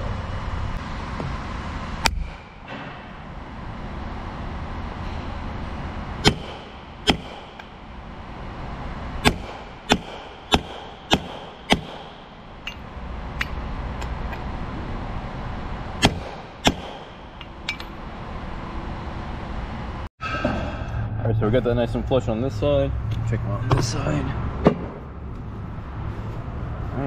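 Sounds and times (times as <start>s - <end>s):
hammer hitting steel: 6.2s - 7.8s, 9.2s - 12.8s, 16.0s - 18.0s.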